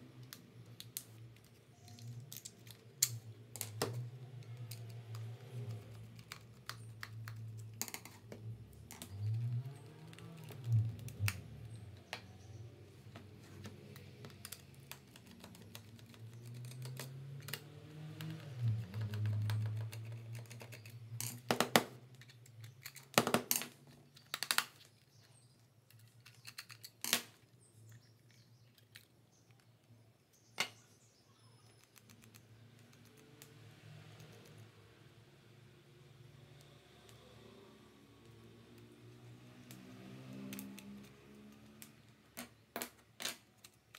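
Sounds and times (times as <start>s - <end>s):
plastic parts clicking and snapping: 0.2s - 12.3s, 13.2s - 30.8s.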